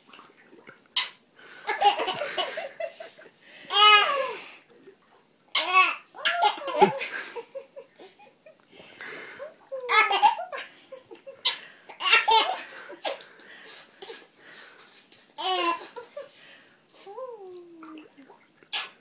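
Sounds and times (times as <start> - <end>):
baby laughing: 5.6 - 7.0, 9.9 - 10.6, 11.4 - 13.2.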